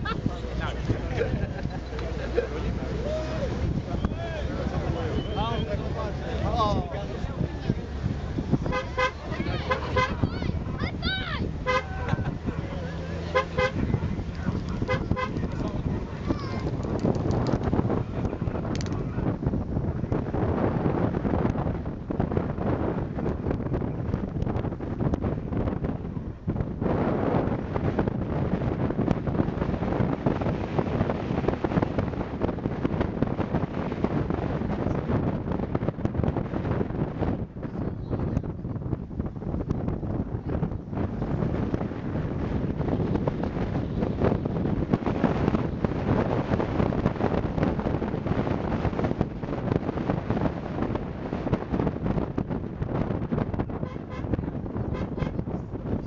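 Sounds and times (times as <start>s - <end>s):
car road noise: 0.0s - 56.0s
wind buffeting microphone: 0.0s - 56.0s.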